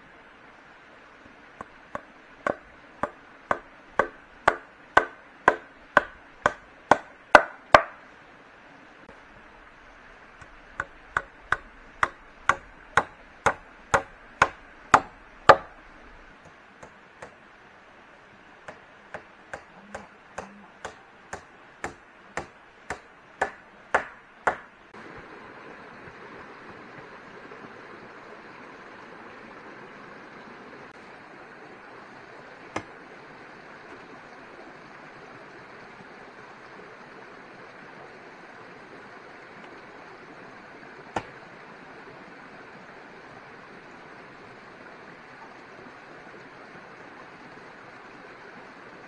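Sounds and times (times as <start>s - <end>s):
flowing water rushing: 0.0s - 49.0s
blade chopping: 1.6s - 8.0s, 10.4s - 15.8s, 18.7s - 24.7s.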